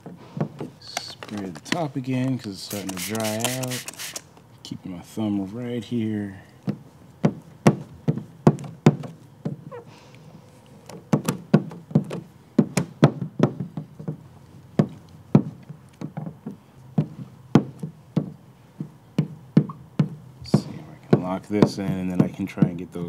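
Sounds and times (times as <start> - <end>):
sharp taps and knocks: 6.6 - 9.7, 10.9 - 14.2, 14.8 - 22.8.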